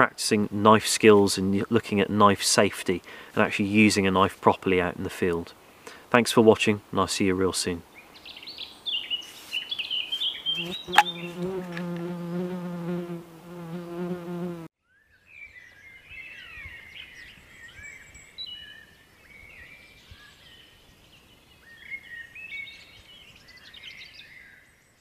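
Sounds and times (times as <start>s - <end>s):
songbirds chirping and whistling: 8.0s - 11.5s, 15.0s - 24.8s
fly buzzing: 10.5s - 14.7s.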